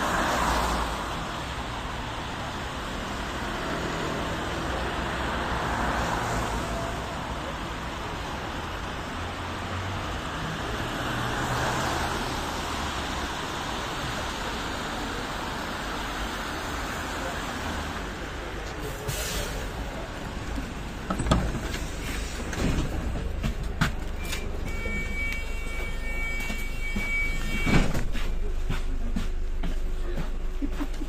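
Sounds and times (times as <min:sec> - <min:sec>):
tyres hissing on wet road: 0:00.0 - 0:07.3, 0:10.6 - 0:20.1
bus pneumatic hiss: 0:18.9 - 0:19.8.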